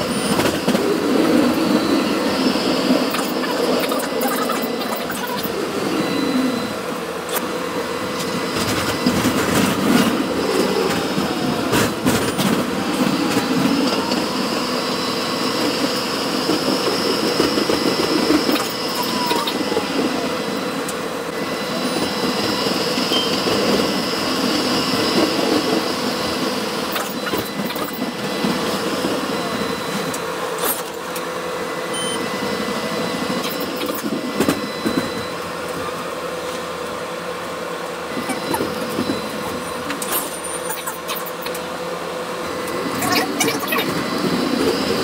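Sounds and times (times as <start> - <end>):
motor hum: 0.0 - 35.8
wheels rumbling on rails: 0.0 - 45.0.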